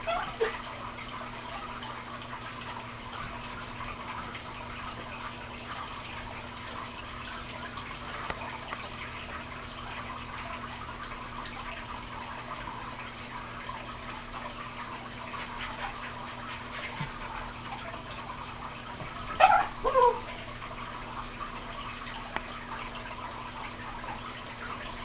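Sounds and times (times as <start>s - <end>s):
dog barking: 19.4s - 20.3s.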